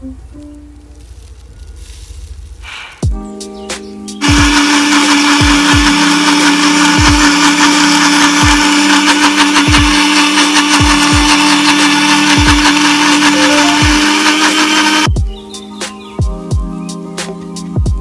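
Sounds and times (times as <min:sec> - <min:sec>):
electric blender running: 0:04.2 - 0:15.1.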